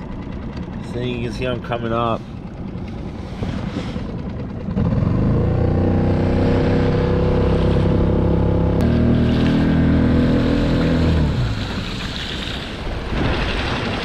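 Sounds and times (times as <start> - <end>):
outboard motor running: 0.0 - 14.0
wind: 0.0 - 14.0
water rushing past hull: 6.0 - 14.0.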